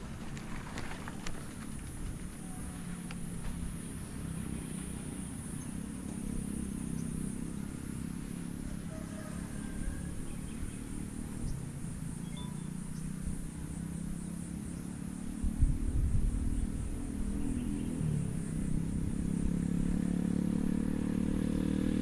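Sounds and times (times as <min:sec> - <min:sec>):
bike tyres rumbling on concrete: 0:00.0 - 0:11.8.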